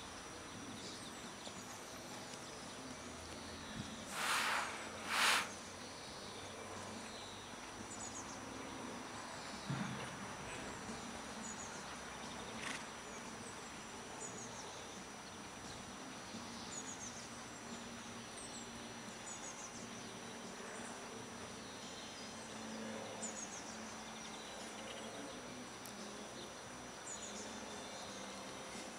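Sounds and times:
small birds chirping: 0:00.0 - 0:09.7.

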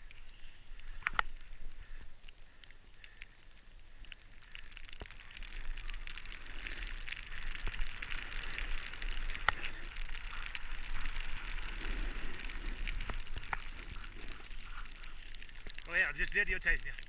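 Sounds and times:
snowboard sliding over snow: 0:07.8 - 0:14.6.

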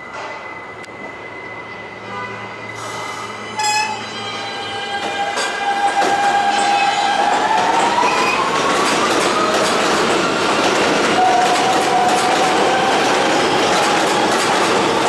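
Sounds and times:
high wheel squeal: 0:00.0 - 0:08.7
subway train running noise: 0:00.0 - 0:15.0.

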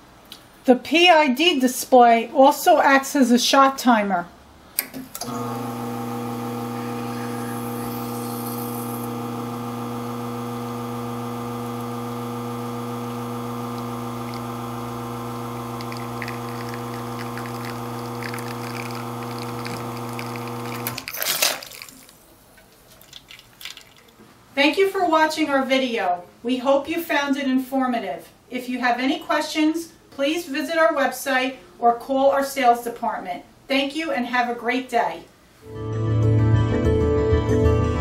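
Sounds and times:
espresso machine pump humming: 0:05.2 - 0:21.1
water flowing: 0:11.4 - 0:22.2.

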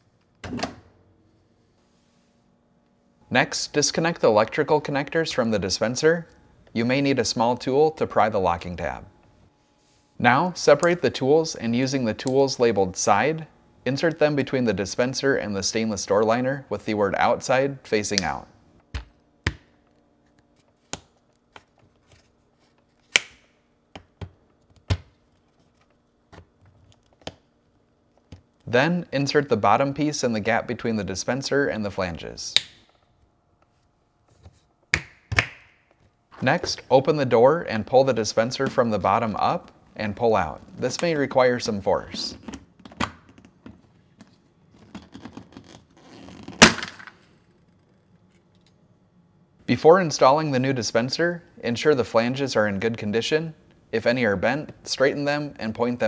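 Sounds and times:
sharp plastic snap: 0:23.1 - 0:24.1.

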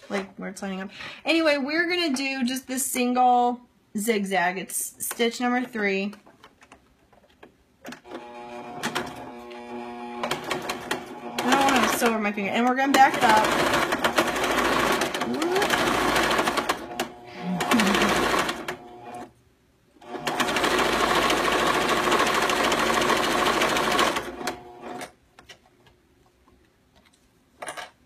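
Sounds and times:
sewing machine stitching: 0:08.1 - 0:12.2, 0:12.9 - 0:19.3, 0:20.0 - 0:25.1.

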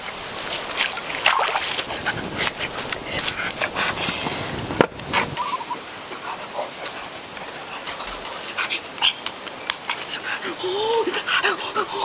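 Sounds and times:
stream water splashing: 0:00.0 - 0:12.0.

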